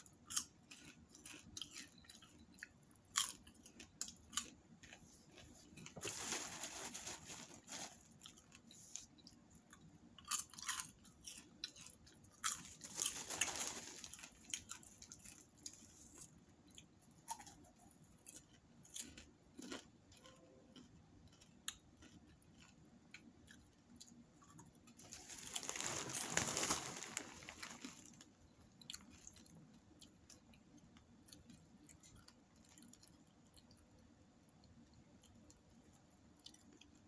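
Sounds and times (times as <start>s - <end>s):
popcorn being chewed: 0.0s - 37.0s
plastic bag crinkling: 5.8s - 9.0s, 12.4s - 15.4s, 25.0s - 28.4s.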